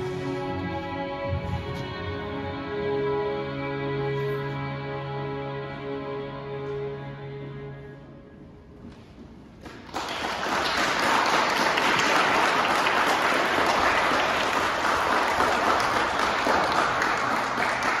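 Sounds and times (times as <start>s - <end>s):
audience applauding: 9.6s - 18.0s.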